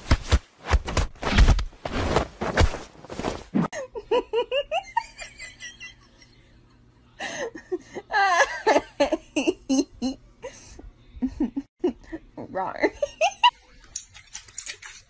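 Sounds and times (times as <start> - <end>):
rustling scuffle: 0.0 - 3.7
person laughing: 3.8 - 6.6, 7.2 - 13.5.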